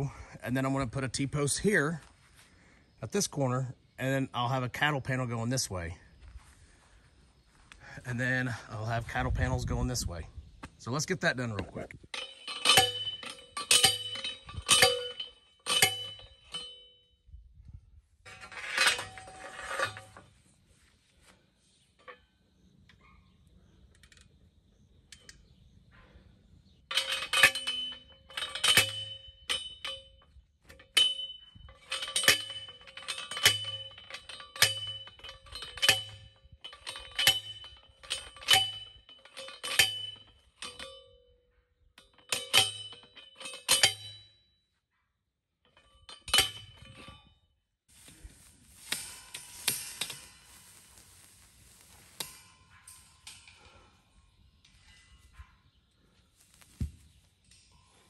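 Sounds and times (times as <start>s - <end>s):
post driver clanging on metal post: 11.5s - 17.0s, 18.3s - 20.3s, 26.9s - 41.4s, 42.0s - 44.4s, 45.7s - 47.3s, 51.8s - 54.0s
rustle: 47.9s - 58.0s.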